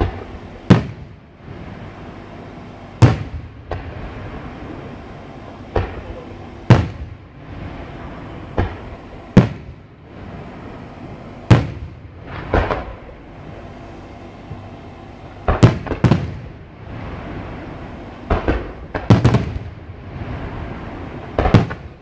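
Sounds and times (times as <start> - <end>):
firework shells bursting: 0.0 - 1.9, 2.9 - 10.5, 11.1 - 14.3, 15.4 - 16.6, 18.2 - 19.7
small firework pops: 3.0 - 3.9, 18.3 - 19.6.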